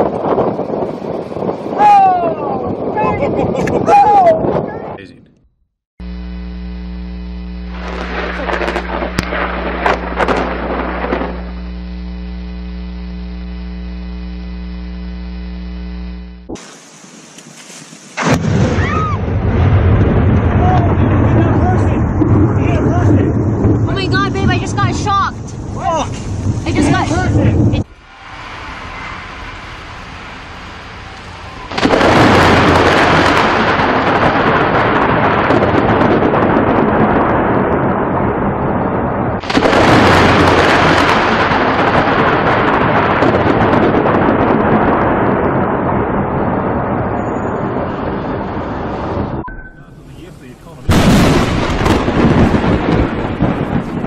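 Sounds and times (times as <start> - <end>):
electrical mains hum: 6.0 - 16.5
noisy rush with sharp pops: 6.0 - 54.0
thunder: 7.8 - 11.4, 18.2 - 49.4, 50.9 - 54.0
rain: 16.6 - 35.7, 50.8 - 54.0
low hiss: 49.9 - 51.0.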